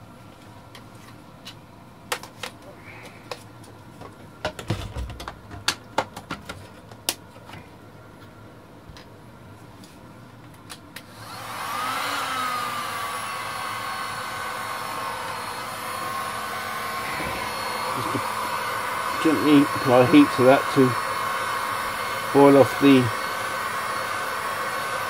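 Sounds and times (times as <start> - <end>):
hot air gun blowing: 11.1 - 25.0.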